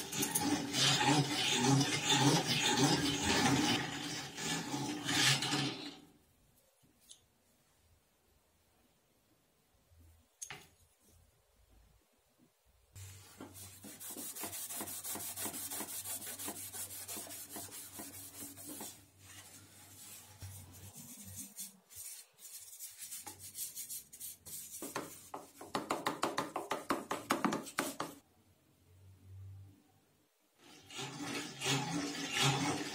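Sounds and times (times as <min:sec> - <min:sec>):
cloth rubbing on copper sheet: 0:13.0 - 0:25.6.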